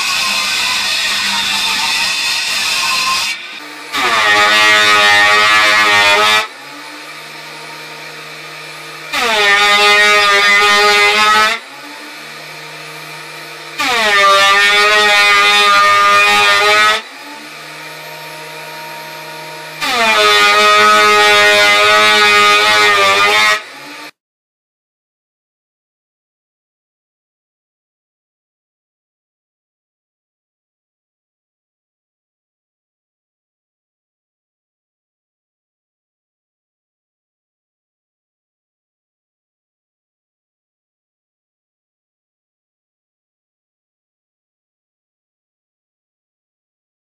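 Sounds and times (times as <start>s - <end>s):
planer motor hum: 0.0s - 24.1s
planer cutting whine: 0.0s - 24.2s.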